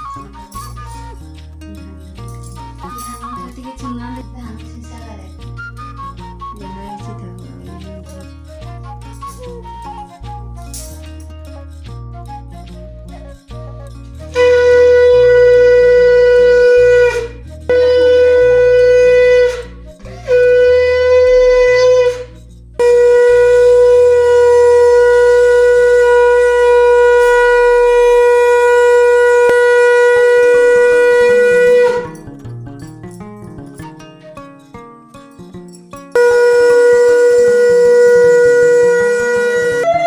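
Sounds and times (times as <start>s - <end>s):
conch shell blasts: 14.2s - 32.4s, 36.0s - 40.0s.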